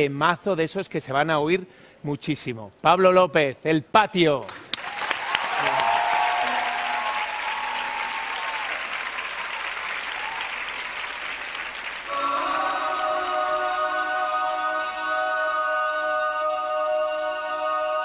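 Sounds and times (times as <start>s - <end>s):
studio audience applauding: 4.4s - 12.4s
people cheering: 4.8s - 12.6s.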